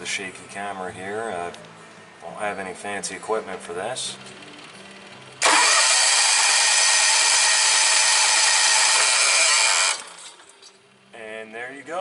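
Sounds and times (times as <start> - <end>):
engine cranking on starter: 5.4 - 10.7.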